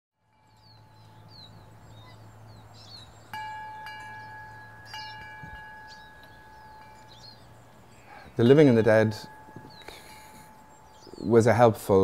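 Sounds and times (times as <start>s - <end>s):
small birds chirping: 0.4s - 12.0s
chime ringing: 3.0s - 11.4s.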